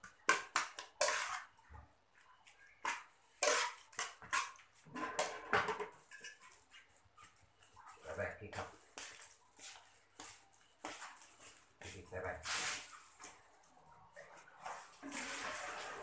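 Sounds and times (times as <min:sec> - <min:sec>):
metal spoon scraping a pot: 0:00.3 - 0:01.6, 0:02.8 - 0:06.6.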